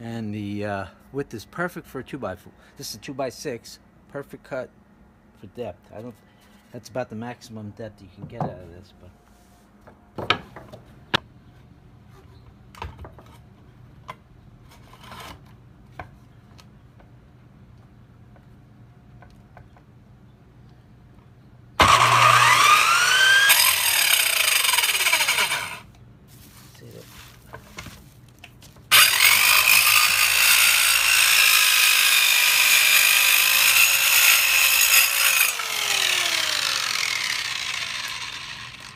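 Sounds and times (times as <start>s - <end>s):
circular saw cutting wood: 21.8s - 25.9s, 28.9s - 38.9s
saw motor winding down: 21.8s - 25.9s, 28.9s - 38.9s.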